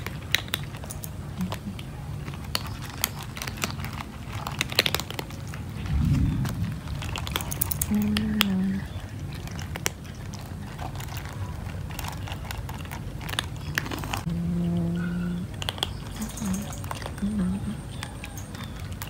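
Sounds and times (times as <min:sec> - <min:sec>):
cats crunching dry kibble: 0:00.0 - 0:14.4, 0:15.0 - 0:19.0
low rumble: 0:05.5 - 0:09.8
short low hum: 0:05.9 - 0:07.1.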